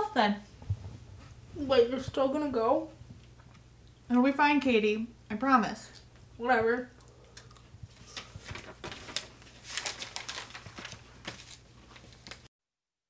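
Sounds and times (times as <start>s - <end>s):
low steady hum: 0.0s - 12.4s
fabric rustling: 7.9s - 12.5s.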